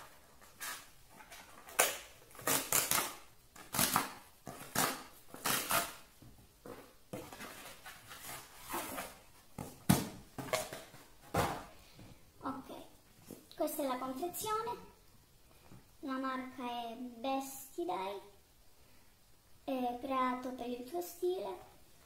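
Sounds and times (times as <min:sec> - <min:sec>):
cardboard rustling and scraping: 0:00.0 - 0:03.0, 0:03.6 - 0:11.7.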